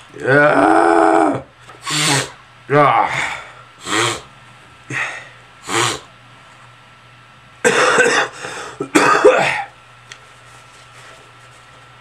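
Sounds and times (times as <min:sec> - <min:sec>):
man sneezing: 0:01.8 - 0:02.4, 0:03.0 - 0:04.3, 0:04.9 - 0:06.1.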